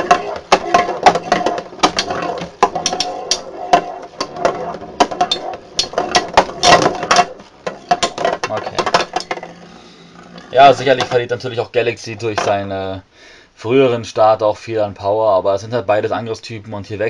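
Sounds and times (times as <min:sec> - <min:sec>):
spinning tops clashing: 0:00.0 - 0:09.6.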